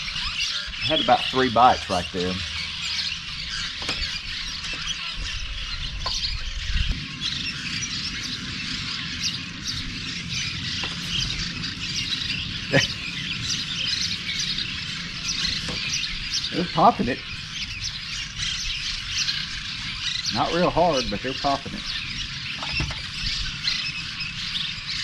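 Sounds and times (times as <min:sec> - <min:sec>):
small birds chirping: 0:00.0 - 0:25.0
low rumble: 0:00.8 - 0:20.9.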